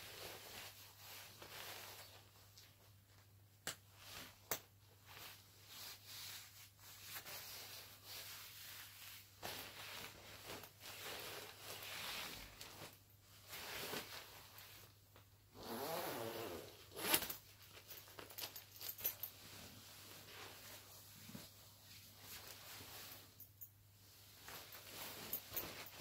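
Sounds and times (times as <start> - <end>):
nylon coat rustling: 0.0 - 2.4, 5.0 - 15.0, 15.6 - 26.0
zipper pulled open: 15.6 - 17.4.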